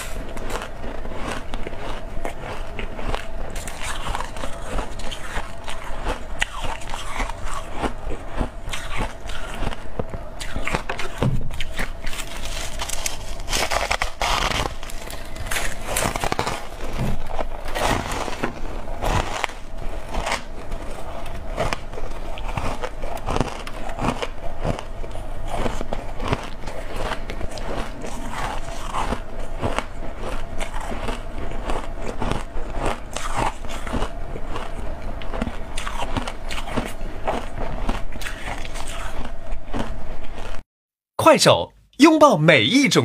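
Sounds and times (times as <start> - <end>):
faint steady hum: 0.0 - 40.6
frost being crunched and chewed: 0.0 - 40.6.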